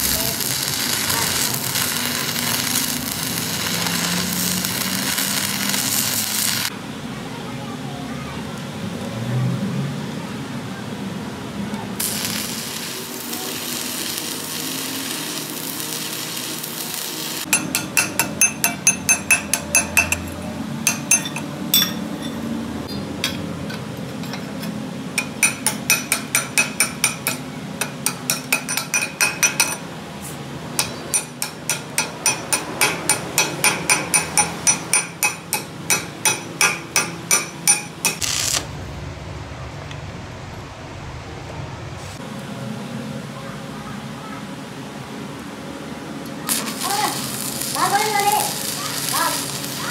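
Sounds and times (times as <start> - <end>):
arc welding hissing and crackling: 0.0 - 6.8, 12.0 - 20.3, 37.4 - 38.8, 46.3 - 49.9
hammer striking steel: 17.5 - 29.8, 30.8 - 38.2.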